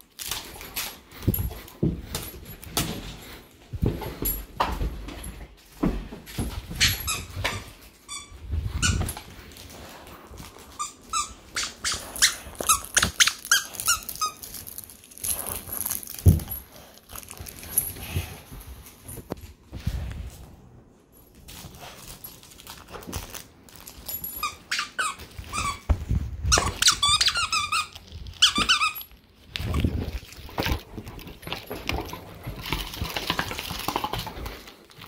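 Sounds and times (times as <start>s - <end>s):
squeaky dog toy squeaking: 6.8s - 9.2s, 10.8s - 14.5s, 24.4s - 25.9s, 26.5s - 29.1s.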